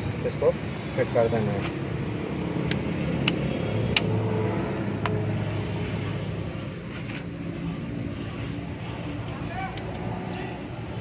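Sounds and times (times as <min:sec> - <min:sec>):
low motor hum: 0:01.9 - 0:11.0
sharp metallic clicks: 0:02.6 - 0:04.2.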